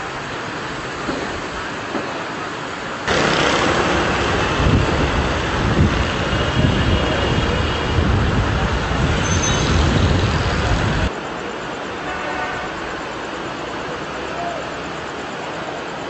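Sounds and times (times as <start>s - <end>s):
low rumbling noise: 3.1s - 12.1s.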